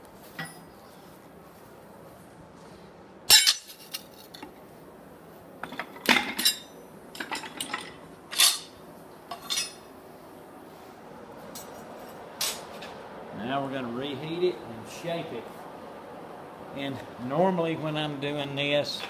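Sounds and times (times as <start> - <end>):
metal tools clinking on anvil: 0.4 - 0.7, 3.3 - 4.1, 5.8 - 9.8.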